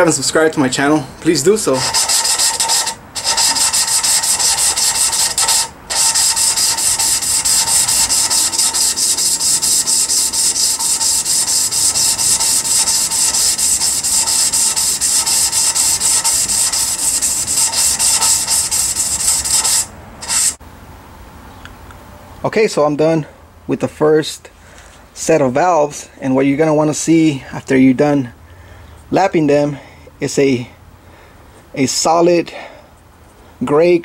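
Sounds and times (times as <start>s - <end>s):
valve lapping rasping: 1.8s - 20.6s.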